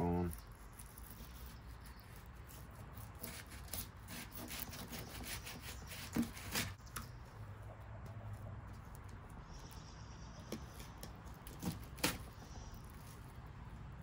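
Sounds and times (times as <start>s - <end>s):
knife scraping along fish backbone: 0.0s - 6.8s.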